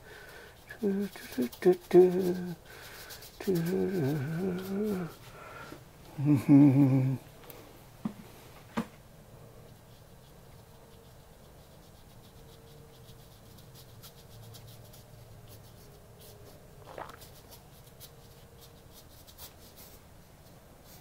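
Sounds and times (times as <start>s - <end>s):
faint steady hum: 0.0s - 21.0s
paintbrush scratching on canvas: 0.5s - 5.3s, 9.6s - 20.1s.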